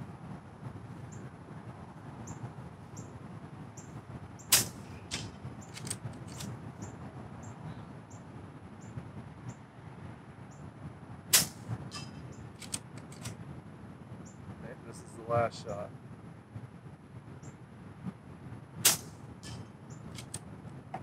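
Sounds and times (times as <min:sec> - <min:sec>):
air rifle shot: 0:04.5 - 0:05.3, 0:11.3 - 0:11.7, 0:18.8 - 0:19.2
side lever clicks: 0:05.1 - 0:06.5, 0:12.6 - 0:13.4, 0:20.2 - 0:20.4.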